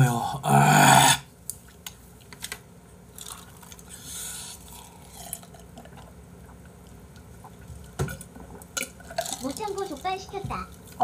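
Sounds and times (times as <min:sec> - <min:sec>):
eating sounds: 0:03.1 - 0:10.2
person drinking: 0:03.2 - 0:06.6.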